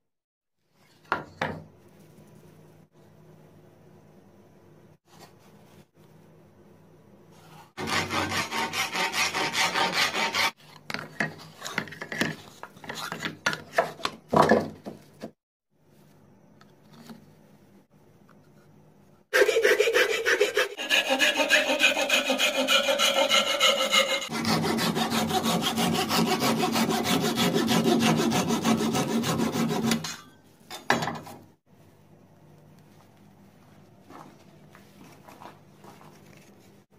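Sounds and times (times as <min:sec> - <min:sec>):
hand tool filing strokes: 0:07.7 - 0:10.6, 0:19.3 - 0:30.2.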